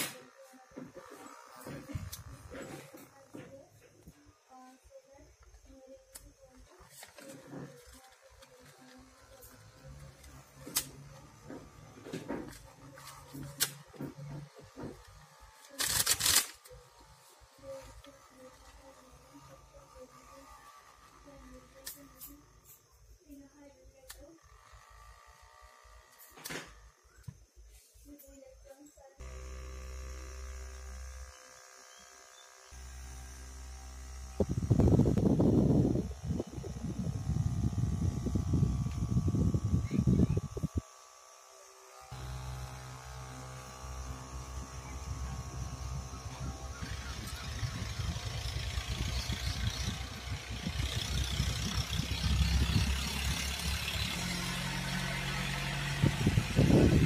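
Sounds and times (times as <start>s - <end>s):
small fan motor humming: 0.0s - 57.0s
fan air blowing on microphone: 32.8s - 41.0s, 42.1s - 57.0s.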